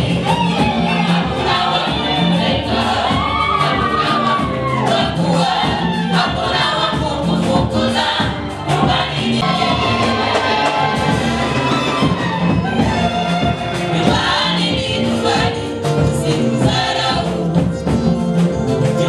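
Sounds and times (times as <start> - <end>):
band with bass and beat: 0.0 - 19.0
gospel choir singing: 0.0 - 19.0.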